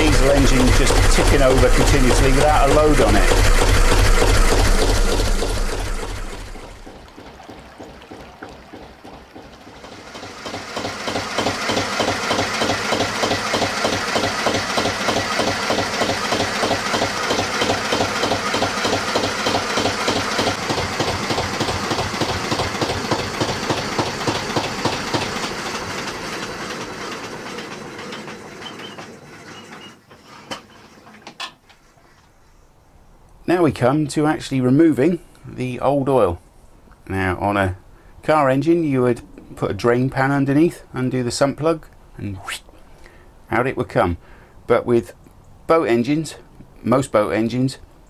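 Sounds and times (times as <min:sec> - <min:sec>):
diesel engine running: 0:00.0 - 0:29.9.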